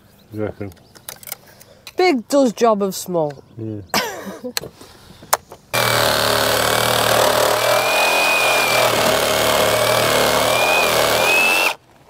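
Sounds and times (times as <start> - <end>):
power saw cutting timber: 5.8 - 11.8.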